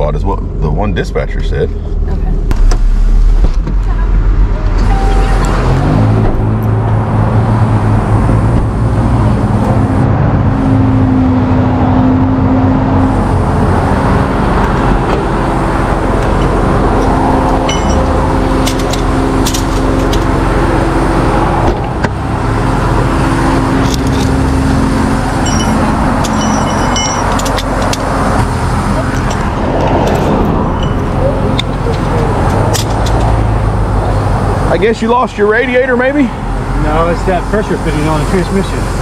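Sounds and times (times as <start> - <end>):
passing road traffic: 0.0 - 39.0
vehicle engine running: 0.0 - 39.0
metal parts clinking: 16.2 - 20.3, 23.8 - 24.4, 25.4 - 28.2, 29.0 - 33.4.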